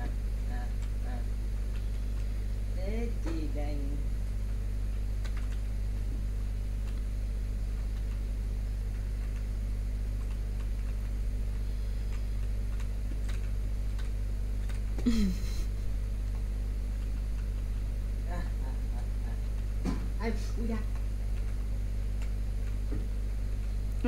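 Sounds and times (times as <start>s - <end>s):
low electrical hum: 0.0s - 24.0s.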